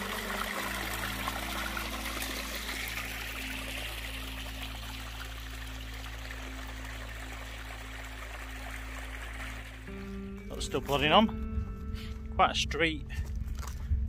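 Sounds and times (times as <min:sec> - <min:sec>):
stream splashing over rocks: 0:00.0 - 0:10.9
low droning background music: 0:00.0 - 0:14.0.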